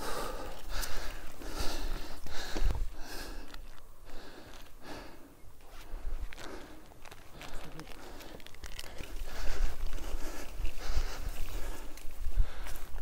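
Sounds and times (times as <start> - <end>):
person breathing hard: 0.0 - 13.0
wind rumbling on microphone: 8.4 - 13.0.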